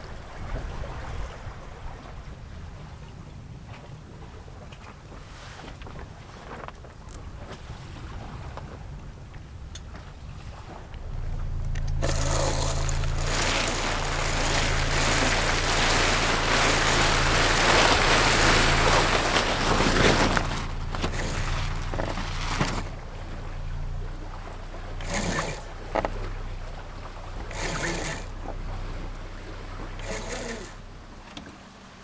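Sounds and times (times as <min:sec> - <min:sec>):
steady low hum: 0:08.8 - 0:32.0
sailcloth rustling and flapping: 0:12.0 - 0:23.0.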